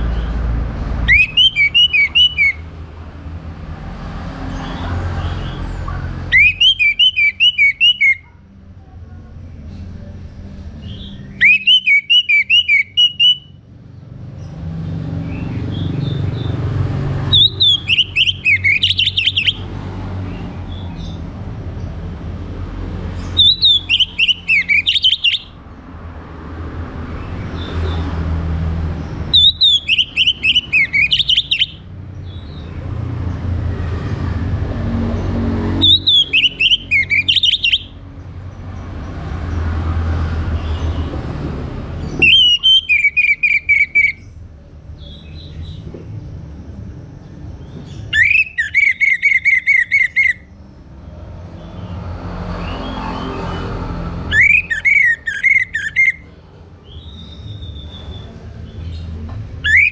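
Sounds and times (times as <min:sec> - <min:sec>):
thrush singing whistled notes: 0:01.0 - 0:02.8, 0:06.2 - 0:08.3, 0:10.8 - 0:13.7, 0:17.2 - 0:19.7, 0:23.2 - 0:25.6, 0:29.3 - 0:32.6, 0:35.7 - 0:38.0, 0:42.0 - 0:44.4, 0:47.6 - 0:50.6, 0:52.6 - 0:59.9.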